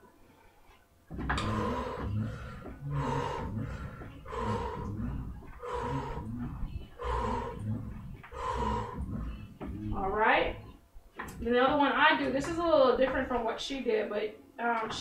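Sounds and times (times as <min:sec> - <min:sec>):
hoarse strained sound: 0:01.1 - 0:11.6.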